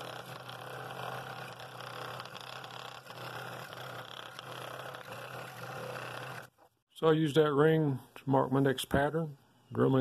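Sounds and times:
scroll saw cutting wood: 0.0s - 6.6s.

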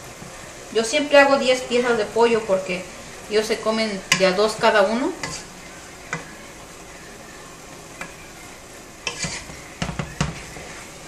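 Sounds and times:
sauce sizzling: 0.0s - 11.0s
wooden spoon knocking on pot: 9.8s - 10.5s.

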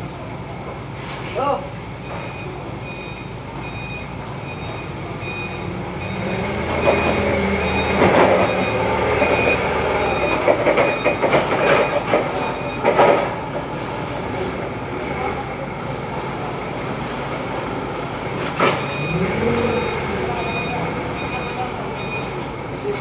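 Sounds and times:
forklift engine running: 0.0s - 23.0s
warning beeper short beeps: 2.0s - 12.9s, 18.8s - 22.4s.

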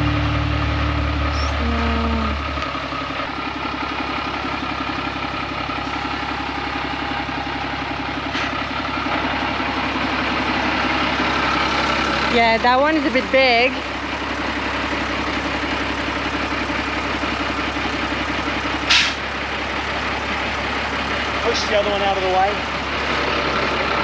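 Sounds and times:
diesel truck engine running: 0.0s - 24.0s.

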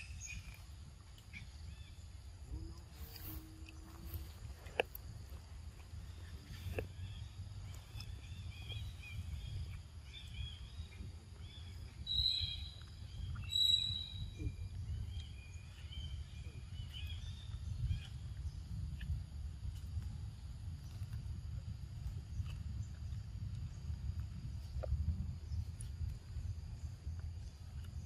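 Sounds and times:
small birds chirping: 0.0s - 28.0s
wind rumble on microphone: 0.0s - 28.0s
loud bird calls: 6.0s - 18.2s.

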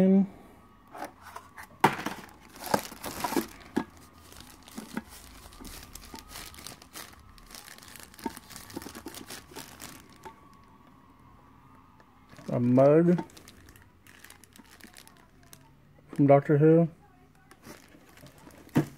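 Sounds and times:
plastic bag crinkling: 2.1s - 10.7s, 12.3s - 15.7s, 17.4s - 18.9s.

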